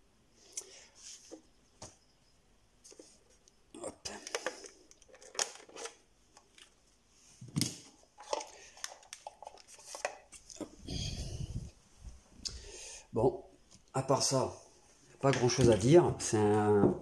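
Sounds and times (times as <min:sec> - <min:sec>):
plastic handling clicks and scrapes: 0:04.1 - 0:06.8, 0:07.6 - 0:10.6.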